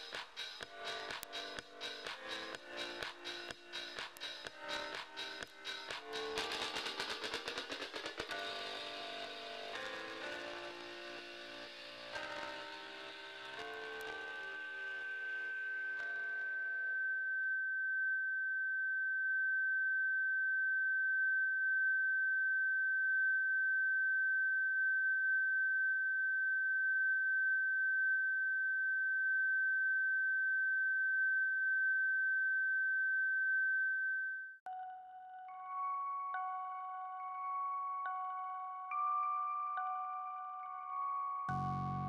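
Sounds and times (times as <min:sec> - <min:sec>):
high-pitched electronic tone: 0:41.5 - 0:42.0.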